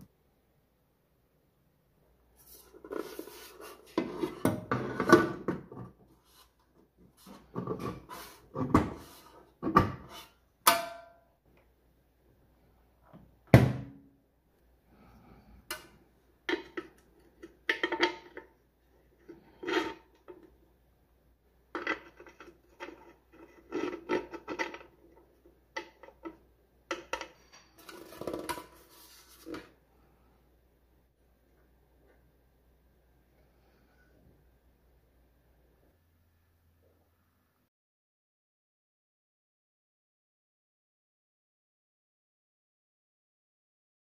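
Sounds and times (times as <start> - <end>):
metal pan clattering and rubbing: 2.4 - 6.4, 7.2 - 10.4, 27.0 - 29.7
metal pan clunking: 10.7 - 11.2.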